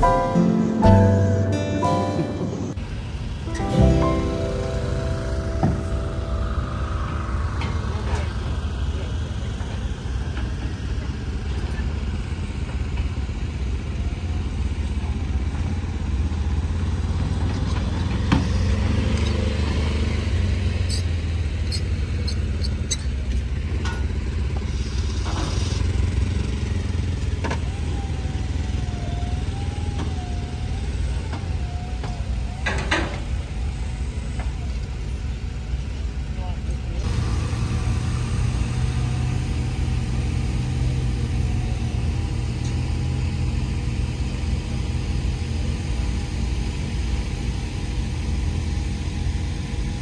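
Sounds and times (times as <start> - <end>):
tractor diesel engine idling: 0.0 - 29.9.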